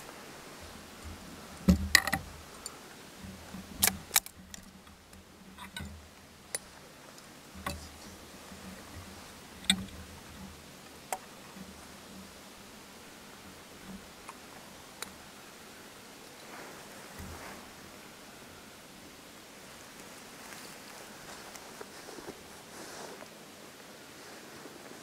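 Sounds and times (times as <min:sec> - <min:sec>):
gear clicks and knocks: 0:01.0 - 0:06.7.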